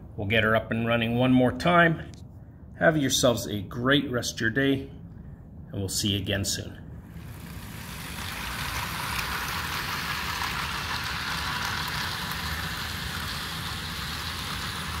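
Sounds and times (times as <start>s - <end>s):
model train motors whirring: 7.1s - 15.0s.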